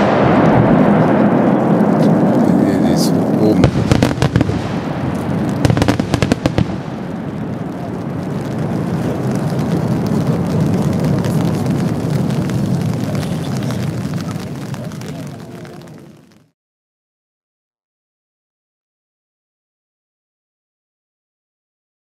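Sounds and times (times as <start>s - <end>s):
long low rumble: 0.0s - 16.2s.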